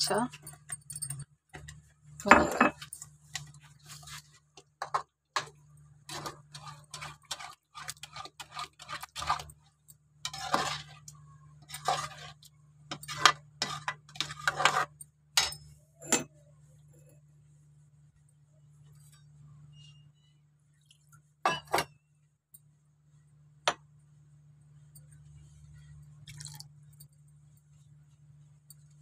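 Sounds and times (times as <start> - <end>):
ladle scraping a pan: 2.7 - 15.0.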